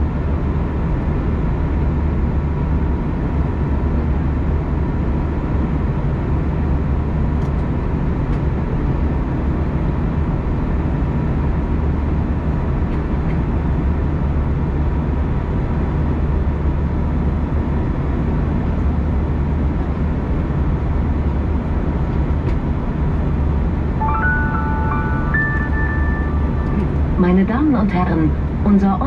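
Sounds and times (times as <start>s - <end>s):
airplane cabin drone: 0.0s - 29.0s
rising cabin chime: 24.0s - 27.2s.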